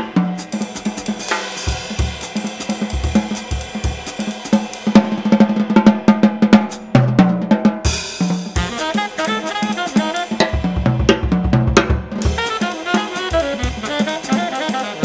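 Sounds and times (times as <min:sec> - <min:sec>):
cymbal crash: 0:00.0 - 0:10.9
drum kit playing: 0:00.0 - 0:15.0.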